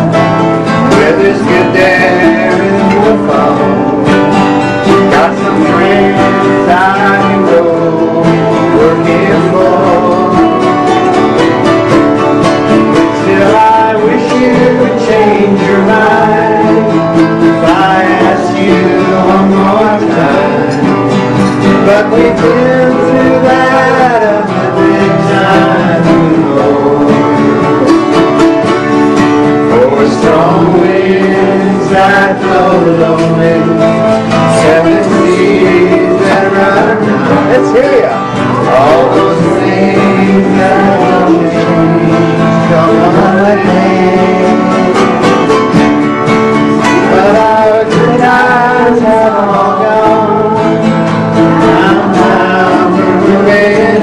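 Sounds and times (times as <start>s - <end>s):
acoustic guitars strummed: 0.0s - 54.0s
man singing: 0.0s - 54.0s
ukulele strummed: 0.0s - 54.0s.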